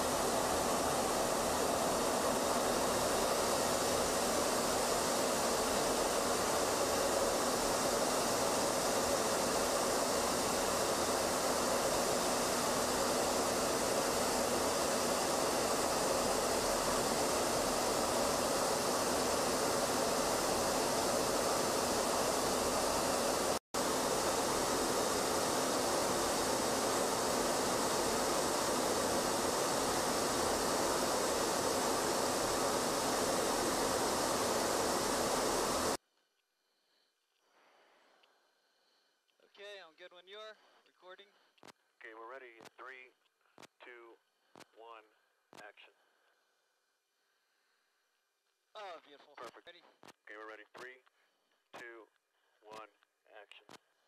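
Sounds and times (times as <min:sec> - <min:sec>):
steady rushing noise: 0:00.0 - 0:36.0.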